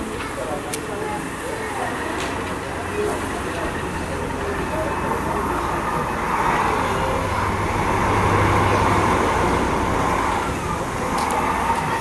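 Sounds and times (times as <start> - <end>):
diesel locomotive engine humming: 0.0 - 12.0.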